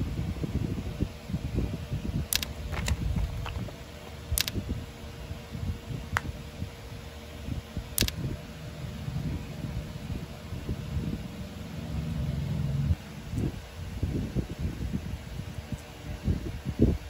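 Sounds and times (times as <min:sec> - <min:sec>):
faint hum: 0:00.0 - 0:17.0
plastic and cardboard clicks: 0:02.3 - 0:04.6
low rumble: 0:02.4 - 0:06.7.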